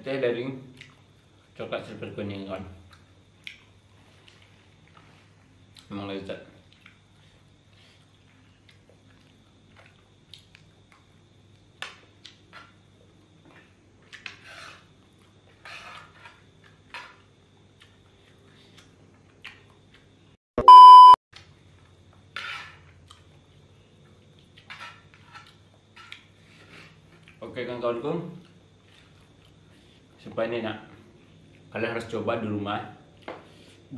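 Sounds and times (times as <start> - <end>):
chewing: 0.8 - 1.1, 2.9 - 5.1, 6.6 - 12.7, 17.8 - 20.1, 23.0 - 27.4
cutlery scraping in a frying pan: 14.2 - 17.2, 22.3 - 22.9, 24.6 - 27.0
loud electronic beep: 20.6 - 21.2.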